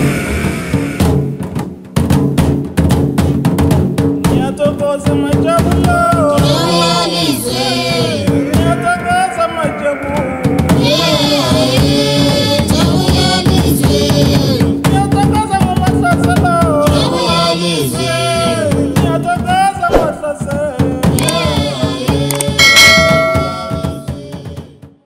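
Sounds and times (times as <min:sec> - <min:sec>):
steady drumming: 0:00.0 - 0:24.8
people singing: 0:04.4 - 0:24.9
ringing bell-like tones: 0:22.4 - 0:24.4.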